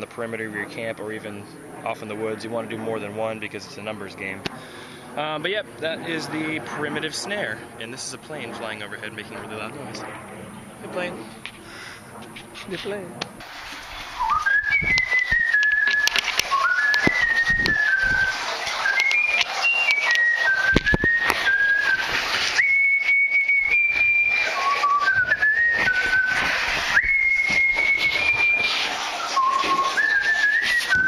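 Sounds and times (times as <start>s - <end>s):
person whistling: 14.2s - 31.0s.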